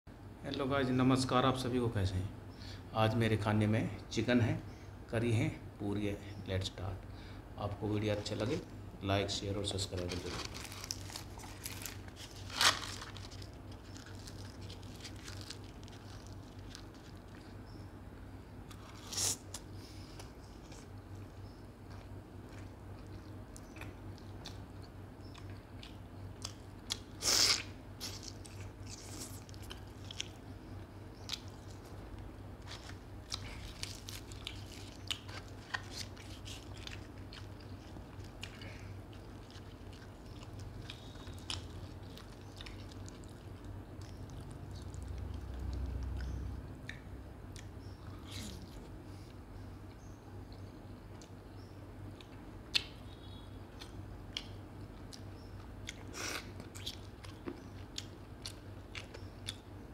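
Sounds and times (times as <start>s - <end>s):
chewing and biting food: 10.0s - 17.7s, 20.2s - 30.6s, 32.6s - 48.8s, 53.8s - 59.7s.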